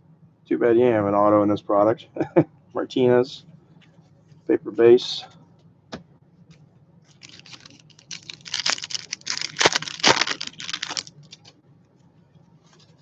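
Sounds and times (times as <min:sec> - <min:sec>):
card pack tearing and crinkling: 0:07.1 - 0:11.5.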